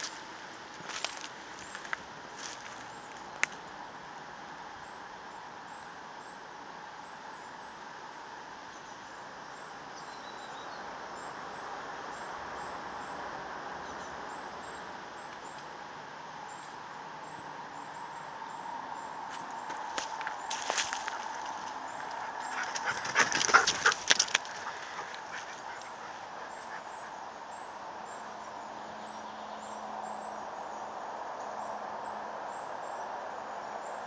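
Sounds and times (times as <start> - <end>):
woodland background hiss: 0.0 - 34.0
faint high bird chirp: 8.7 - 13.2.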